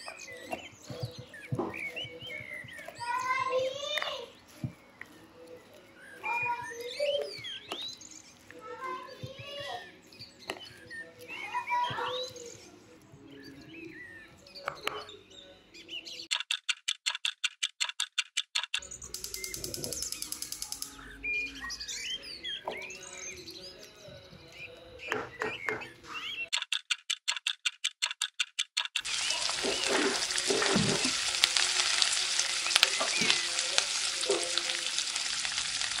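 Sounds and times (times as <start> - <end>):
small birds chirping: 0.0 - 16.4, 18.8 - 26.6, 29.0 - 36.0
fast clock-like ticking: 16.3 - 20.9, 26.5 - 29.2.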